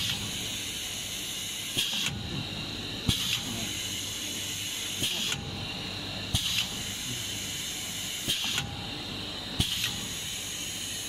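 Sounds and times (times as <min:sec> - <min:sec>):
machine steady hiss: 0:00.0 - 0:11.0
sharp mechanical click: 0:01.7 - 0:02.2, 0:08.2 - 0:08.8, 0:09.6 - 0:10.1.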